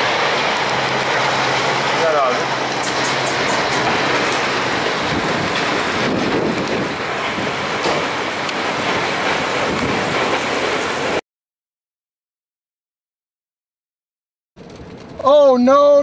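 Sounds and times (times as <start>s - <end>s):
rain: 0.0s - 11.2s
wind rushing: 0.0s - 11.2s.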